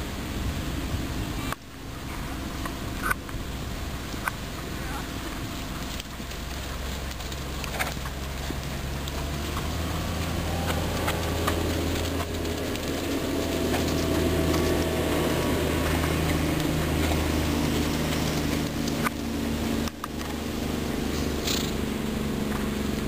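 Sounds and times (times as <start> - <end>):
low engine hum: 0.0 - 23.0.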